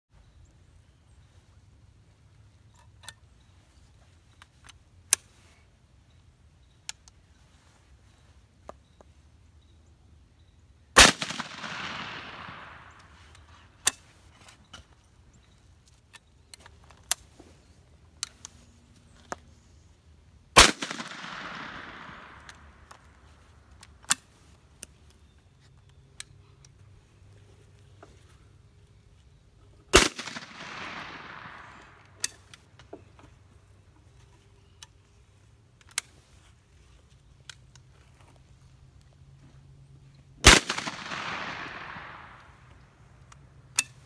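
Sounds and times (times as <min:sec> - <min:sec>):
shotgun shots with echo: 0:11.0 - 0:13.2, 0:20.6 - 0:22.6, 0:29.9 - 0:32.2, 0:40.4 - 0:42.5.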